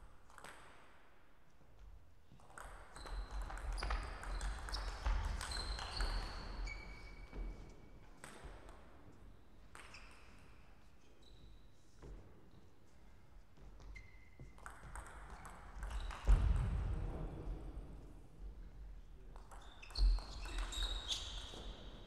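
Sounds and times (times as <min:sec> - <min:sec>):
ping pong ball bouncing on table: 0:14.6 - 0:16.9.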